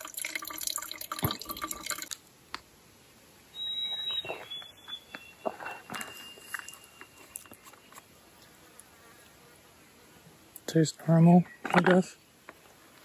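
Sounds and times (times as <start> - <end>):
water trickling into a bottle: 0.0 - 2.3
thin high tone: 3.5 - 8.1.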